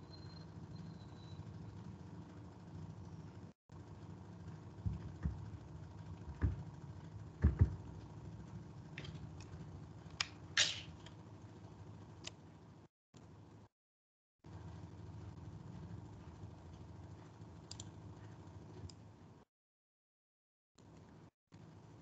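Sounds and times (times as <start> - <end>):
steady low hum: 0.0 - 13.7, 14.5 - 19.5
low thumps: 4.8 - 6.8, 7.4 - 7.9.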